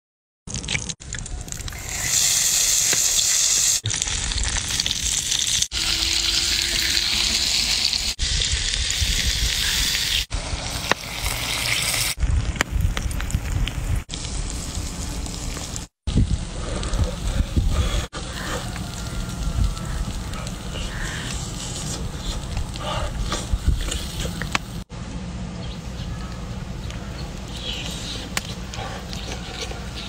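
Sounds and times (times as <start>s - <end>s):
oil and pepper sizzling on stone: 1.5s - 24.9s.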